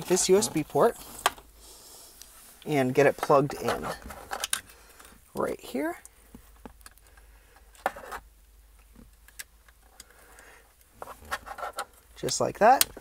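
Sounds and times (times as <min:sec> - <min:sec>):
plastic clicks and handling: 0:03.1 - 0:05.2, 0:06.0 - 0:13.0.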